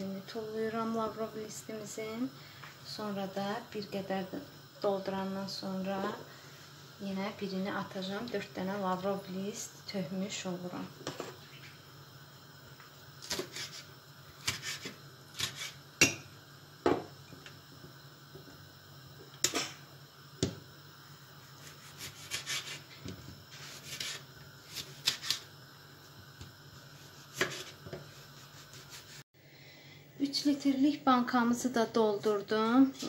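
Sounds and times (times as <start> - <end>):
knife cutting on wooden board: 14.4 - 15.8, 21.9 - 22.8, 27.3 - 29.2.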